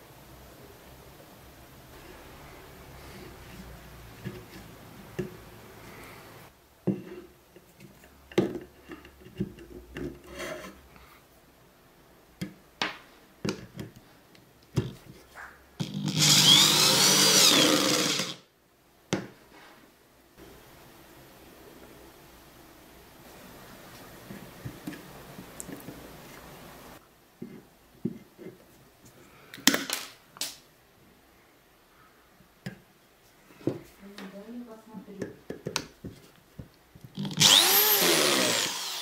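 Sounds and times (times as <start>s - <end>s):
drill driving screw into wood: 15.8s - 18.4s, 37.2s - 39.0s.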